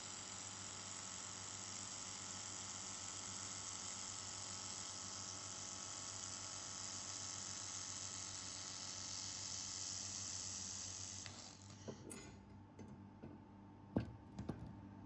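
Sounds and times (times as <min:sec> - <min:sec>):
laser welder hissing: 0:06.4 - 0:12.0.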